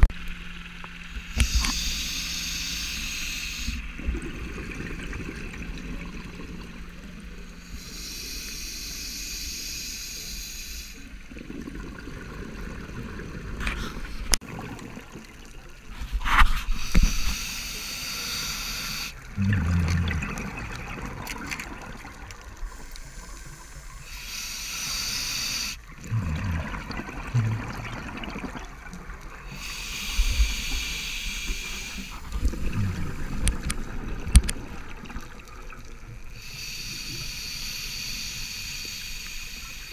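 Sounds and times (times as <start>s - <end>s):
regulator breath hiss: 1.4s - 3.8s, 7.6s - 11.1s, 16.6s - 19.2s, 22.6s - 25.8s, 29.5s - 32.6s, 36.3s - 39.9s
bubbles gurgling: 3.9s - 6.9s, 11.3s - 13.7s, 14.3s - 15.9s, 19.2s - 23.8s, 25.8s - 30.4s, 31.7s - 36.2s.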